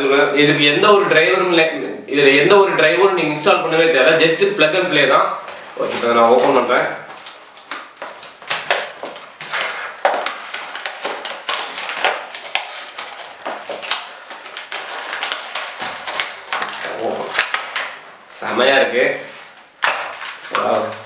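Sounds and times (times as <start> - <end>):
plastic packaging crinkling: 5.2 - 21.0.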